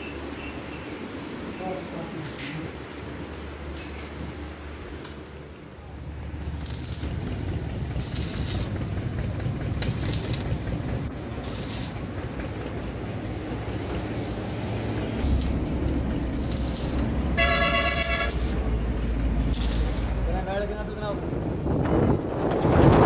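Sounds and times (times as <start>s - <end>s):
engine running: 5.8s - 22.2s
arc welding crackling hiss: 6.1s - 9.0s, 9.7s - 12.2s, 15.2s - 20.6s
vehicle horn: 17.4s - 18.6s.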